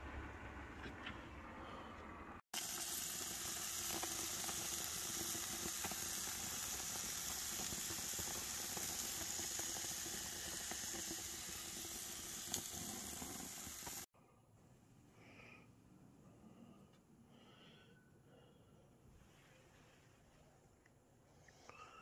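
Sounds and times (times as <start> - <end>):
crackles and pops: 2.6 - 14.1
hamburger patties sizzling on grill: 2.6 - 14.1.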